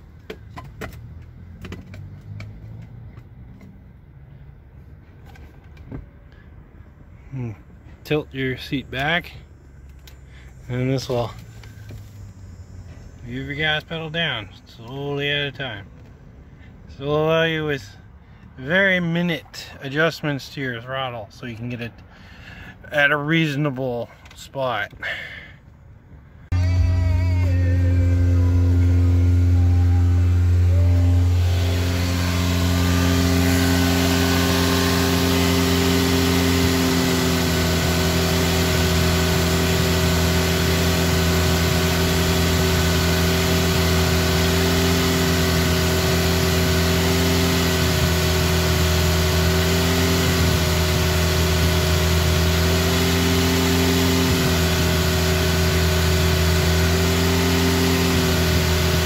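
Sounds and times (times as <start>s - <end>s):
car engine at raised revs: 26.5s - 59.0s.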